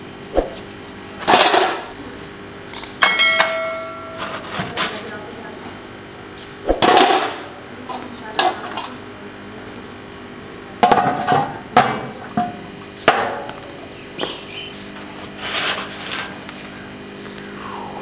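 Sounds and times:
steady low hum: 0.0 - 18.0
metal strikes on tandoor: 3.0 - 4.2.

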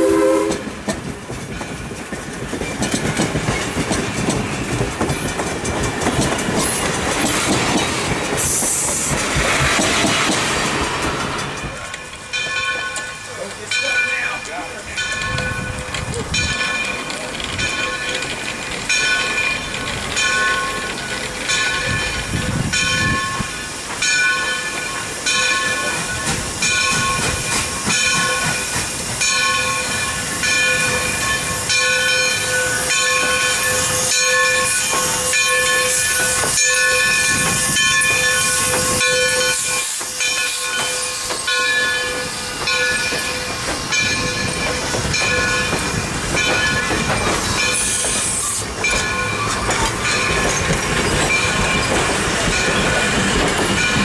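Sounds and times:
steam locomotive passing: 0.0 - 54.0
passenger cars rolling: 0.3 - 54.0
steam hissing: 3.6 - 15.0, 15.7 - 54.0
locomotive bell ringing: 11.4 - 54.0.

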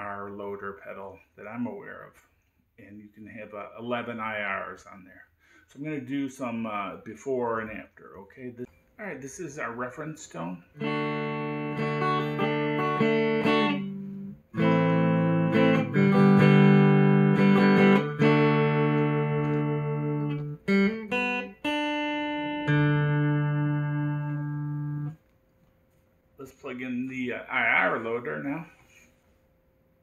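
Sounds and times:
clean electric guitar chords: 10.8 - 25.2.

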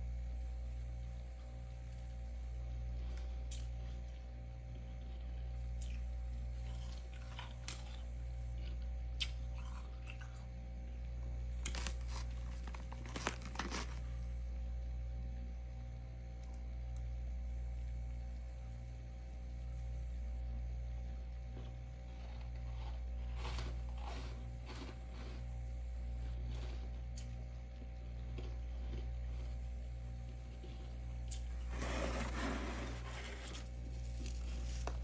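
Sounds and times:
steady low hum: 0.0 - 35.0
frost crunching: 11.5 - 14.4, 21.5 - 25.6.

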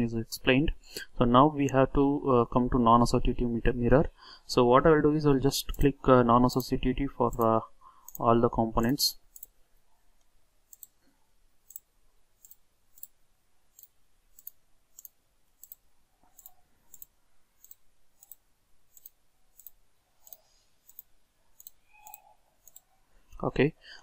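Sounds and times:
computer mouse clicking: 8.8 - 9.5, 10.2 - 11.0, 11.7 - 13.1, 13.8 - 15.8, 16.4 - 22.9.

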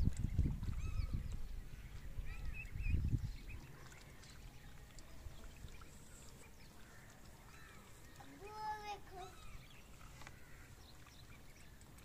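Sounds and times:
low rumble on microphone: 0.0 - 3.9
ducklings peeping: 0.0 - 12.0.

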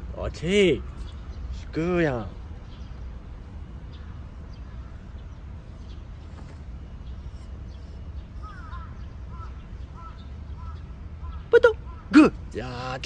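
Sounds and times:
low outdoor rumble: 0.0 - 13.0
crows cawing: 8.4 - 12.4.

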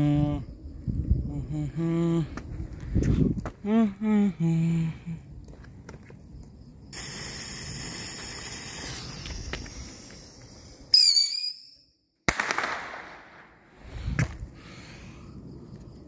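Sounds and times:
firework fountain hissing: 6.9 - 11.5
firework crack: 6.9 - 11.6, 12.2 - 14.4
high whistle: 10.9 - 12.0.

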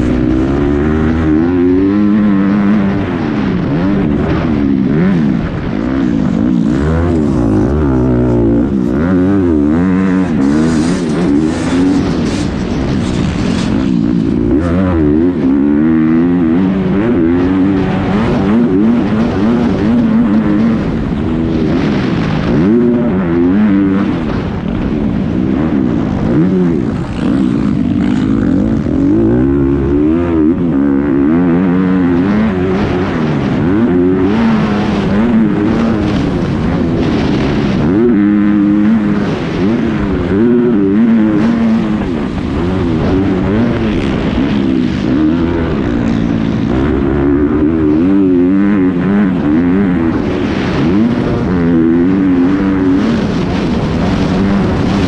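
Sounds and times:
motocross bike engine revving: 0.0 - 55.0
steady rush of noise: 0.0 - 55.0.

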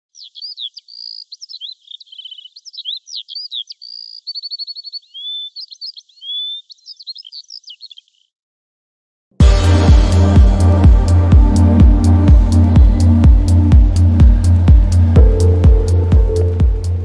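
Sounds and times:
songbird singing: 0.0 - 8.4, 11.6 - 17.0.

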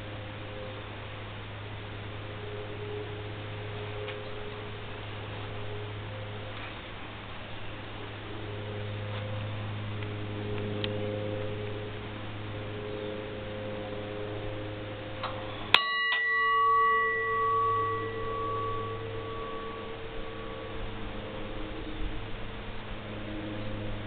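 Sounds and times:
steady low hum: 0.0 - 24.0
brass bell ringing: 13.7 - 21.8.

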